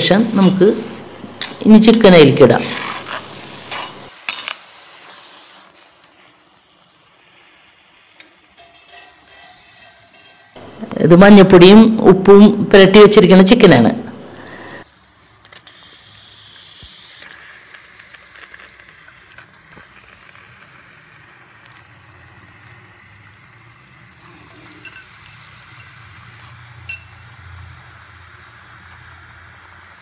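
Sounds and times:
faint sizzle: 0.0 - 30.0
metal ladle clink: 26.9 - 27.2.

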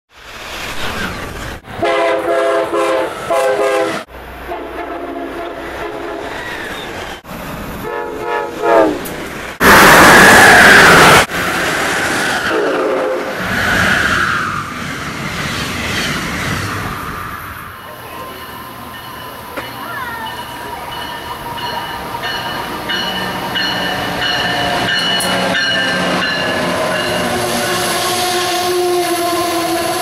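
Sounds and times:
rumble of passing rail cars: 0.1 - 30.0
train rushing past: 0.1 - 30.0
train horn blasts: 1.8 - 6.3, 7.8 - 9.1, 12.5 - 13.4, 24.7 - 30.0.

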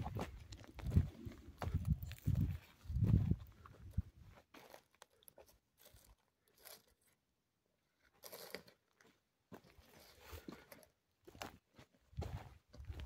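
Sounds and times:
footsteps on gravel: 0.0 - 6.1, 9.5 - 13.0.

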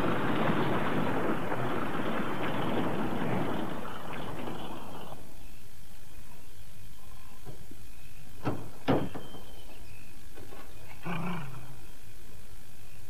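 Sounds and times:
sharp knocks: 8.4 - 9.6.

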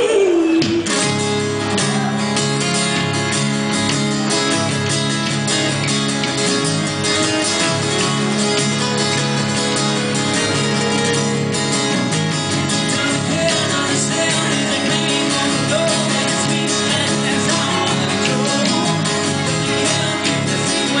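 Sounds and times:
person singing: 0.0 - 3.0, 12.8 - 21.0
acoustic guitars strumming: 0.0 - 21.0.

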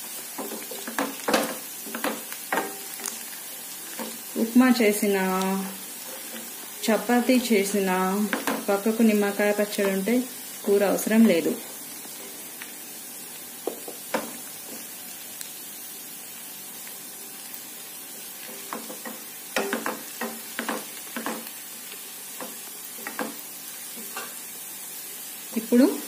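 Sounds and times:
garlic sizzling in hot oil: 0.0 - 26.0
wooden spatula scraping a pan: 5.8 - 6.8.

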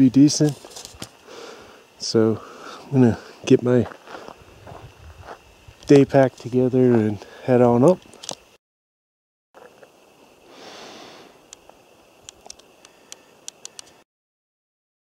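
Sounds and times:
faint forest ambience: 0.0 - 8.6, 9.6 - 14.0.

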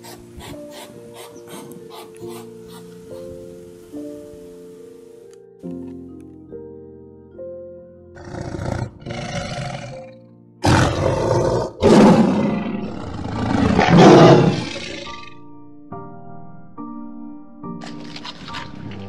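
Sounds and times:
soft background music: 0.0 - 19.0
tiger roaring and growling: 8.2 - 15.3.

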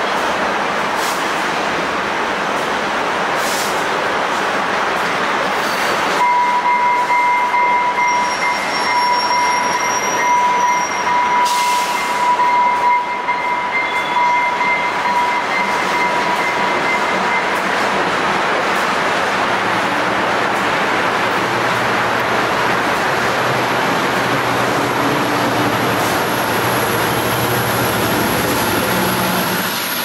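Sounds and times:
train wheels squealing: 5.5 - 6.2, 6.8 - 17.6, 26.0 - 30.0
higher wheel squeal: 5.6 - 6.1, 7.0 - 17.5.

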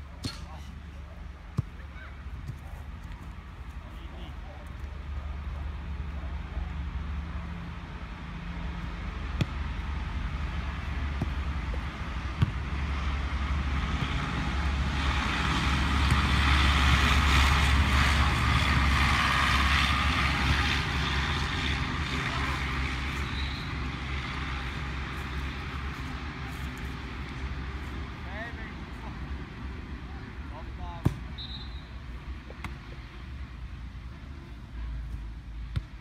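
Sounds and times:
motor vehicle passing: 5.7 - 30.4.

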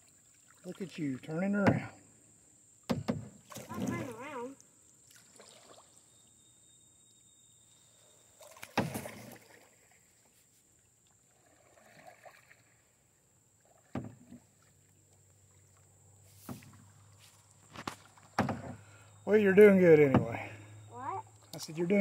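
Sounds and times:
paddle strokes in water: 8.4 - 13.0, 13.6 - 18.8.

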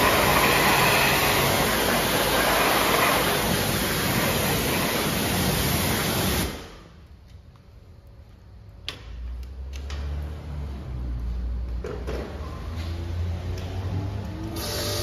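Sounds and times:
pressure washer spraying: 0.0 - 6.8, 14.6 - 15.0.

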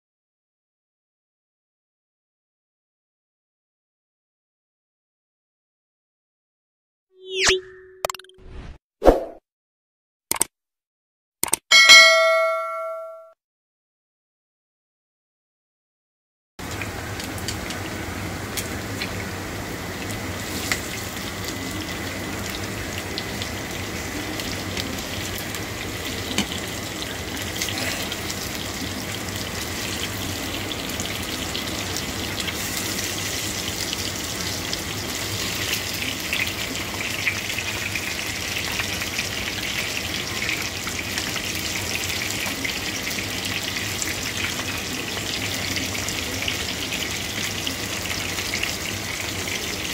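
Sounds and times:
spatula clicks: 11.4 - 11.6
meat sizzling in oil: 16.6 - 49.9.

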